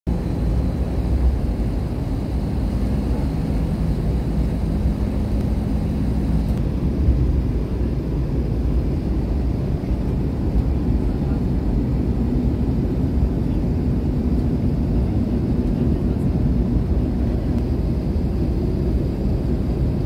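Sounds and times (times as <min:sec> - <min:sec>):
low hum: 0:00.1 - 0:13.3
airliner cabin engine rumble: 0:00.1 - 0:20.0.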